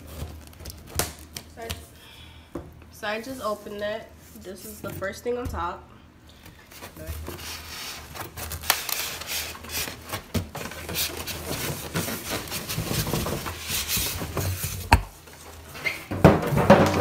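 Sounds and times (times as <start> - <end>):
foam scraping against cardboard: 7.0 - 10.1.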